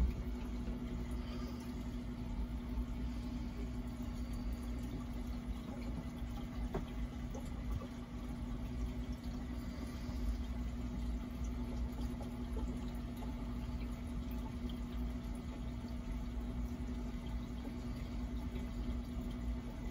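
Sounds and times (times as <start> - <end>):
aquarium filter hum: 0.0 - 19.9
water trickling and bubbling: 0.0 - 19.9.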